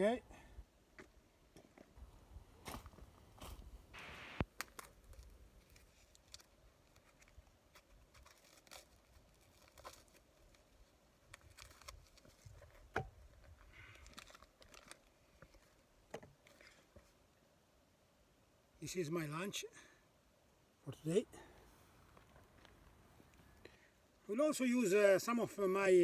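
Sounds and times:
rustling and crinkling: 2.6 - 17.2, 21.6 - 23.6.

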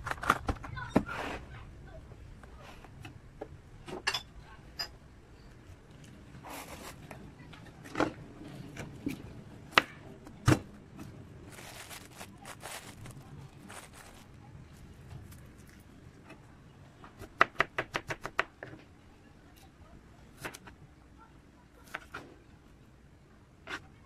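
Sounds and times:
plastic scraping rustles: 6.4 - 7.1, 11.4 - 14.4.

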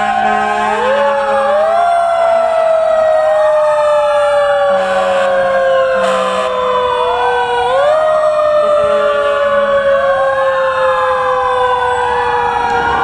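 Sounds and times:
fire truck sirens wailing: 0.0 - 13.0
short horn blasts: 6.0 - 6.5.

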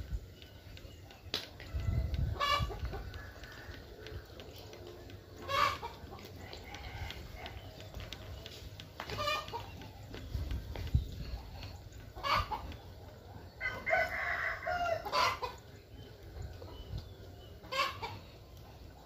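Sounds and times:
chicken calls: 0.3 - 19.0
rooster crowing: 13.6 - 15.0.

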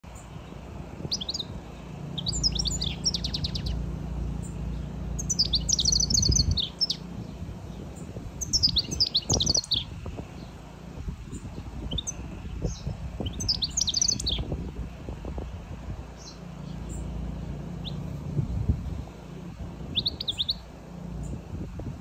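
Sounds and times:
bird twittering: 1.1 - 1.5, 2.1 - 3.8, 4.4 - 10.5, 11.3 - 14.5, 19.9 - 21.4.

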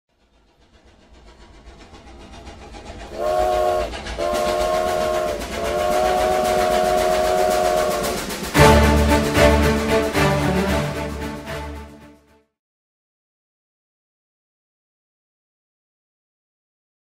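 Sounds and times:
steam locomotive chuffing: 0.1 - 12.0
music: 4.4 - 12.6.

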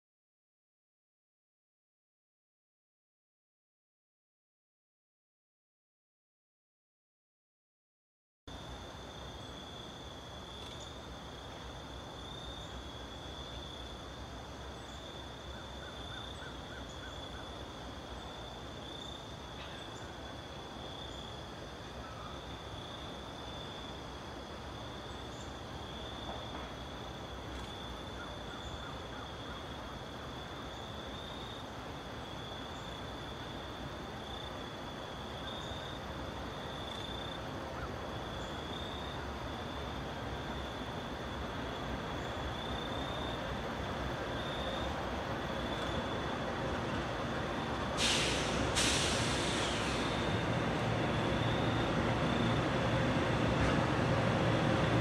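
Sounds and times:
insect chorus trilling: 8.6 - 53.4
low outdoor rumble: 49.5 - 55.0.

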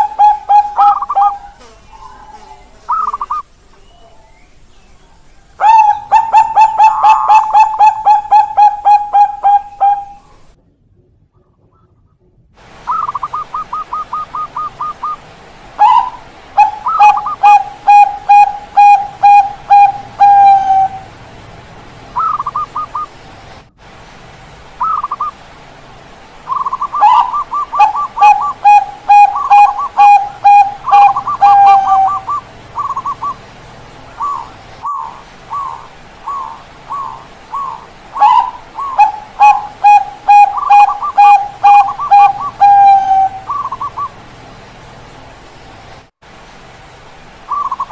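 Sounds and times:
doves cooing: 0.0 - 3.5, 5.5 - 10.5, 12.9 - 23.2, 26.4 - 44.3.

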